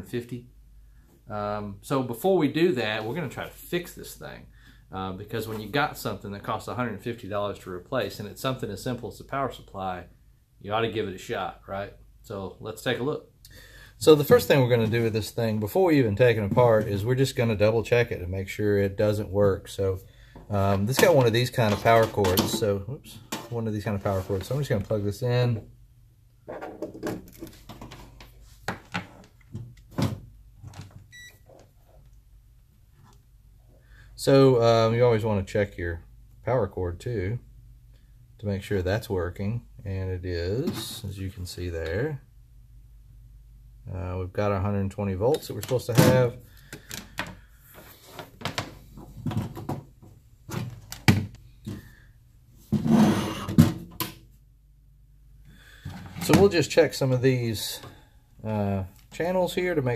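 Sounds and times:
metal case scraping on workbench: 0:52.7 - 0:53.6.

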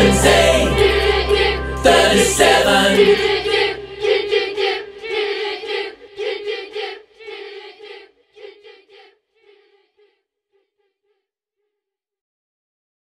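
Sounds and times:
group singing worship song: 0:00.0 - 0:09.9.

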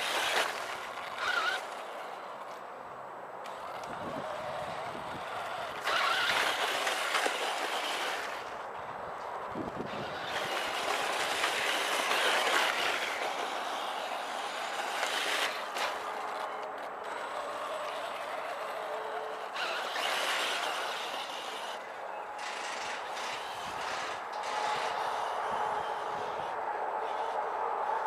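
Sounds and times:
rc car tyres rustling on mulch: 0:00.0 - 0:02.7, 0:03.5 - 0:26.4
faint electric motor whine: 0:00.0 - 0:28.0.

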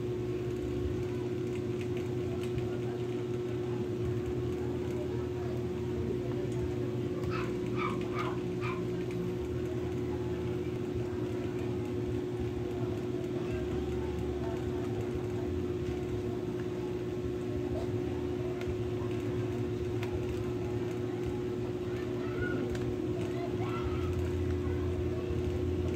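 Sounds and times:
steady machine hum: 0:00.0 - 0:25.9
faint clicks: 0:00.4 - 0:05.7.

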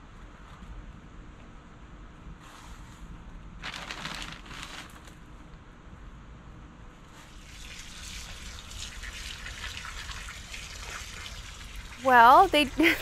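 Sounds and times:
hose spraying water into soil: 0:07.2 - 0:13.0.

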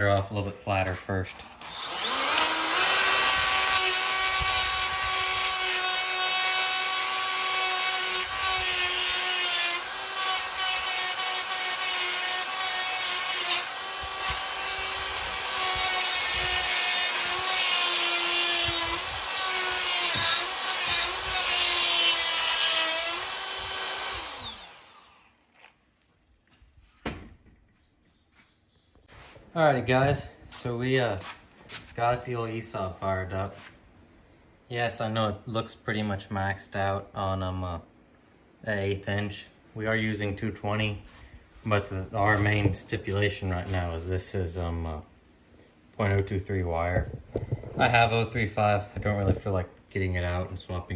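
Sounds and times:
electric grinder whining: 0:01.3 - 0:25.7
grinder spinning down: 0:01.4 - 0:25.5.

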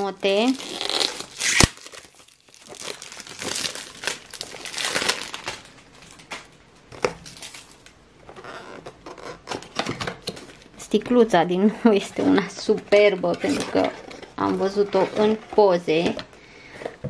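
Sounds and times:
cellophane crinkling and tearing: 0:00.0 - 0:10.8.

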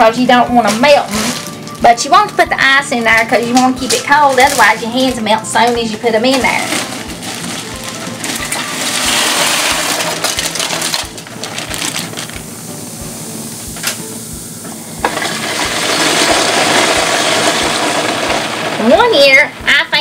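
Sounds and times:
plastic bag rustling: 0:00.3 - 0:14.0
hands stirring ice: 0:00.6 - 0:12.4
ice cubes clattering and splashing: 0:00.6 - 0:12.5, 0:15.0 - 0:19.2.

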